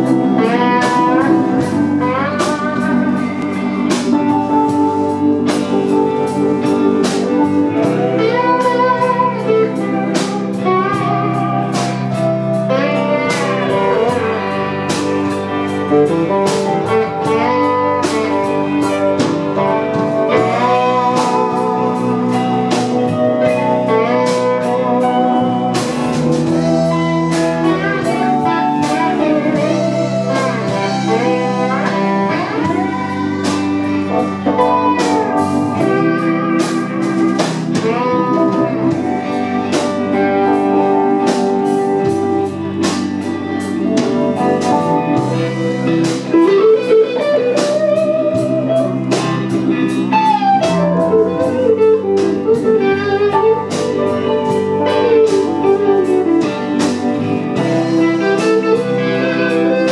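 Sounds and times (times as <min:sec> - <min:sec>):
electric blues band playing: 0:00.0 - 0:59.9
electric guitar lead with bends: 0:00.0 - 0:59.9.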